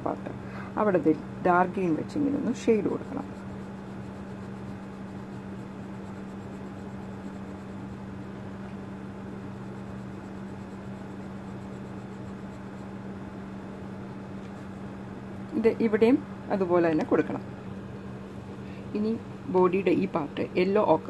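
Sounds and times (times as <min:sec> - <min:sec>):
low background hum: 0:00.0 - 0:21.0
pencil scratching on paper: 0:02.5 - 0:08.1, 0:09.2 - 0:12.9.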